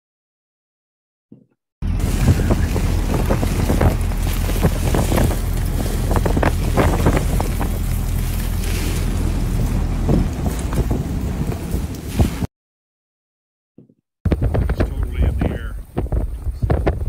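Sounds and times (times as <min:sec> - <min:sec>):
strong wind on microphone: 0:01.8 - 0:12.5, 0:14.3 - 0:17.0.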